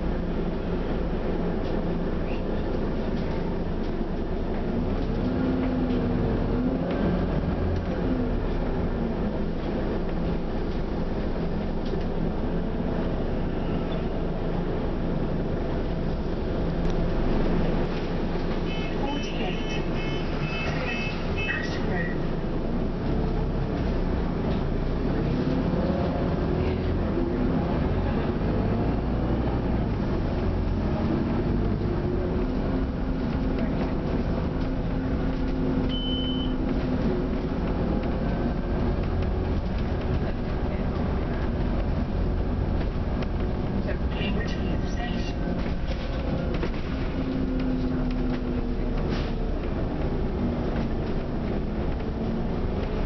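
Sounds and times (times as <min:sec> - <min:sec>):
bus engine drone from inside: 0:00.0 - 0:53.0
short high beep: 0:35.9 - 0:36.6.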